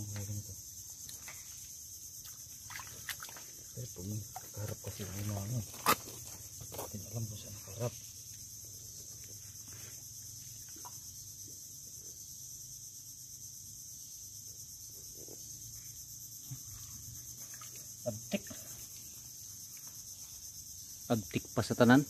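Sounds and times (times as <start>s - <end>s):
cricket chorus drone: 0.0s - 22.0s
wet groping in mud: 2.2s - 6.2s.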